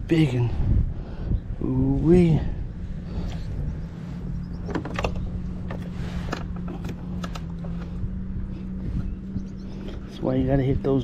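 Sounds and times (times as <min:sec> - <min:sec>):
sharp clicks and knocks: 0:04.7 - 0:08.0.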